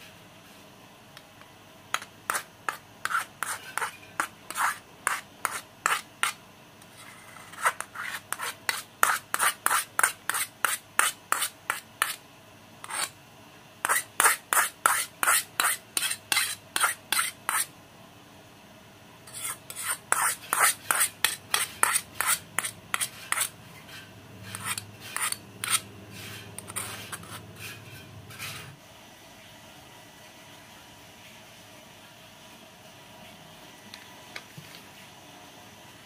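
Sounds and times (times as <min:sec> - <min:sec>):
metal spoon scraping metal pot: 0:03.0 - 0:12.2, 0:19.3 - 0:28.7.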